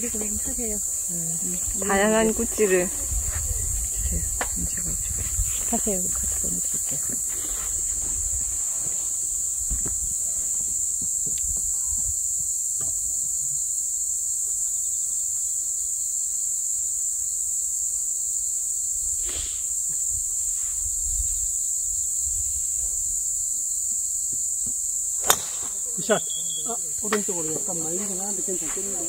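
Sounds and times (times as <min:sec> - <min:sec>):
insects chirring: 0:00.0 - 0:29.0
wind rumble on microphone: 0:01.5 - 0:08.6, 0:09.4 - 0:12.4, 0:20.1 - 0:23.4.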